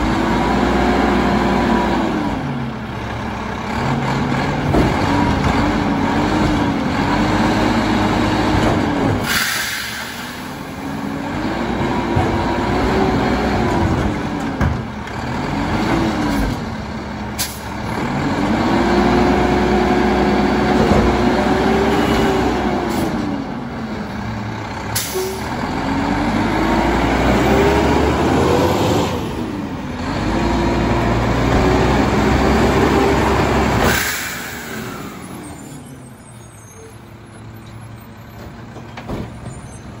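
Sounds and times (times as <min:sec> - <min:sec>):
truck engine revving: 0:00.0 - 0:40.0
sharp air hisses: 0:09.2 - 0:10.6.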